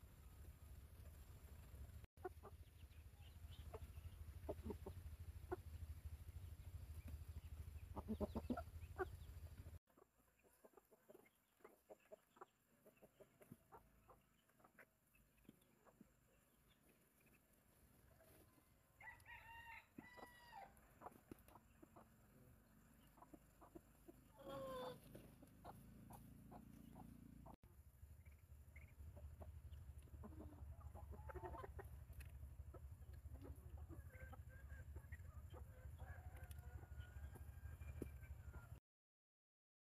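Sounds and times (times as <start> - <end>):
low steady hum: 0.0 - 9.8, 15.0 - 38.8
chickens clucking: 1.0 - 19.2, 20.0 - 38.8
ducklings peeping: 1.1 - 18.4, 21.0 - 38.8.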